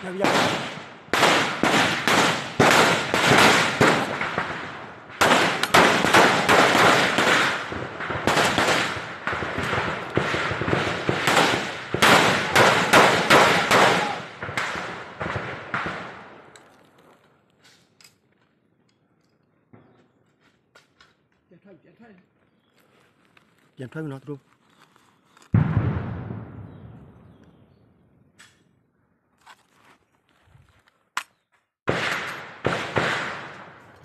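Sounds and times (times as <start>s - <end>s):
rifle and automatic gunfire: 0.0s - 16.3s, 31.9s - 33.8s.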